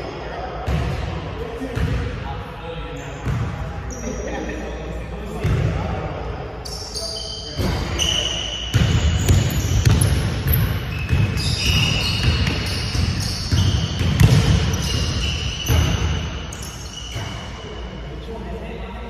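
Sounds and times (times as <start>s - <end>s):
basketball bouncing on hardwood floor: 8.7s - 16.0s.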